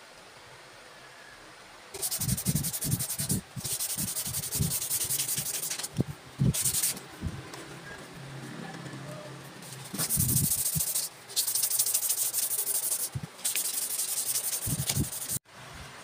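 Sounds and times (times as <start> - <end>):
sandpaper rubbing on wood: 2.0 - 7.0, 9.6 - 15.4.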